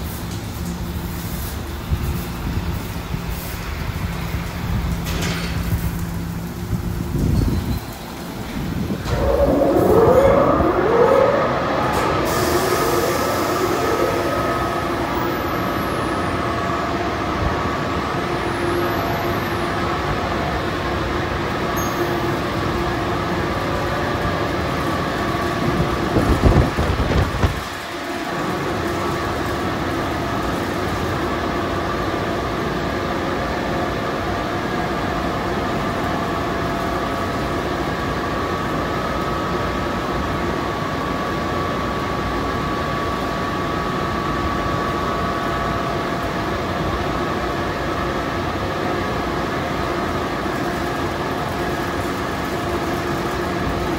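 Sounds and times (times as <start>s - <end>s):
air dryer blowers running: 8.1s - 21.7s.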